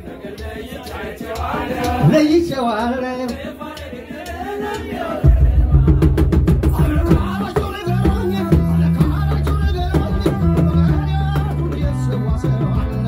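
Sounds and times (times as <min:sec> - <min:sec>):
band playing quick beat: 0:00.0 - 0:13.0
hand drums: 0:00.0 - 0:13.0
person singing: 0:05.2 - 0:13.0.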